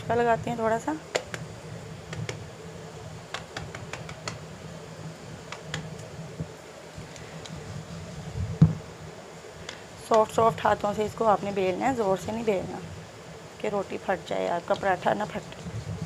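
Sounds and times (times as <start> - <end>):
light clicks and taps: 14.7 - 14.9.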